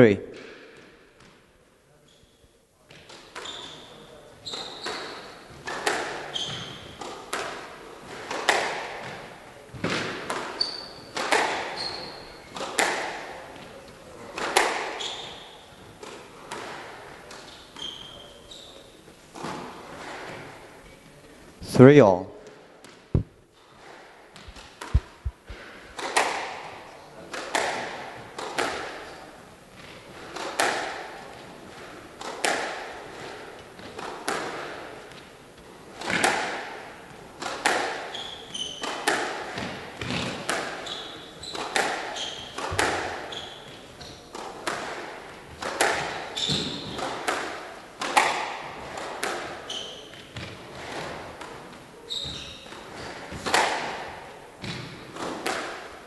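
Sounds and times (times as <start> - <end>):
shoes squeaking on wooden floor: 3.4 - 7.1, 10.6 - 12.6, 15.0 - 16.1, 17.4 - 21.0, 24.3 - 25.9, 38.1 - 39.0, 39.6 - 44.4, 46.4 - 47.1, 49.6 - 51.1, 52.0 - 53.4
squash ball hits: 4.8 - 12.0, 12.6 - 13.6, 14.4 - 16.9, 22.8 - 23.4, 24.3 - 29.0, 29.8 - 31.2, 32.2 - 34.8, 36.0 - 40.9, 41.5 - 43.7, 44.3 - 51.6, 52.2 - 55.9.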